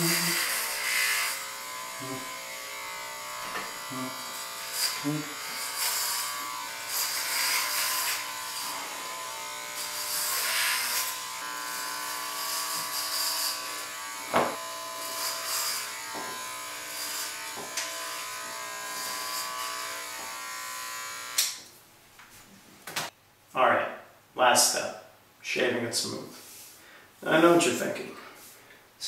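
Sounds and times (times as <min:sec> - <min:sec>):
electric hair clippers buzzing: 0:00.0 - 0:21.7.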